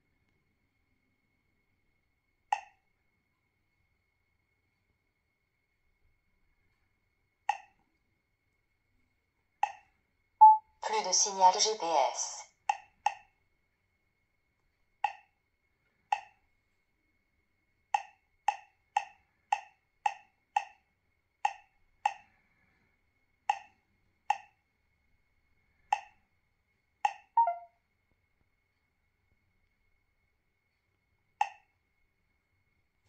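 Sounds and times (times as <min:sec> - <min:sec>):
touch screen key-press beeps: 0:10.4 - 0:10.6, 0:27.1 - 0:27.7
longer electronic tone: 0:27.4 - 0:27.7.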